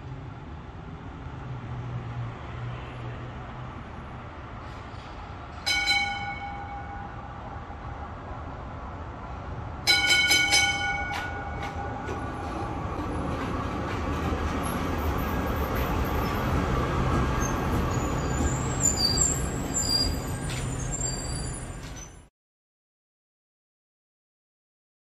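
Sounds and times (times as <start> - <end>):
tram rumbling past: 0.0 - 22.3
tram warning bell ringing: 5.5 - 7.7, 9.8 - 22.2
high wheel squeaks: 10.5 - 22.3.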